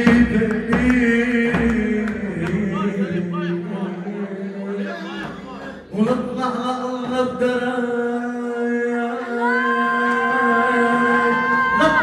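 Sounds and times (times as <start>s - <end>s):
person singing long notes: 6.7s - 12.0s.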